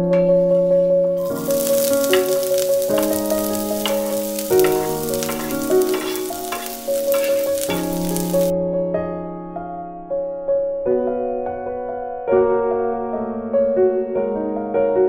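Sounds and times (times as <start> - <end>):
soft piano tune: 0.0 - 15.0
vegetables sizzling in hot oil: 1.2 - 8.5.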